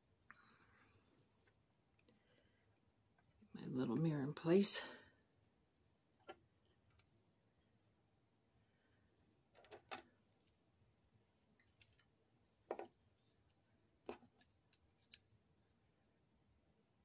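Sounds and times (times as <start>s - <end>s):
faint clicks and taps of jewelry pieces: 0.2s - 3.4s, 9.5s - 10.6s, 11.6s - 15.4s.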